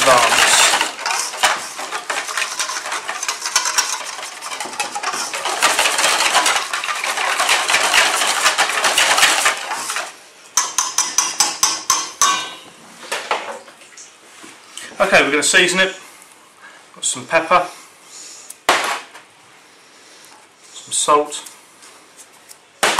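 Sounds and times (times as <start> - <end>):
whisk beating batter in bowl: 0.0 - 11.4.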